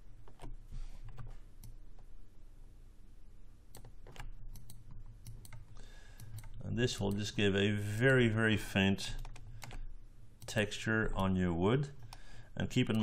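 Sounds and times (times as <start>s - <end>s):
faint low hum: 0.0s - 13.0s
keyboard and mouse clicks: 0.2s - 2.1s, 3.7s - 7.3s, 9.2s - 10.6s.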